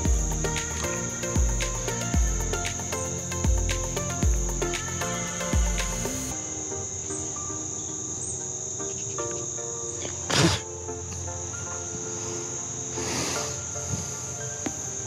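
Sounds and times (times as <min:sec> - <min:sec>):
high-pitched insect chorus: 0:00.0 - 0:15.0
soft music of held notes: 0:00.0 - 0:15.0.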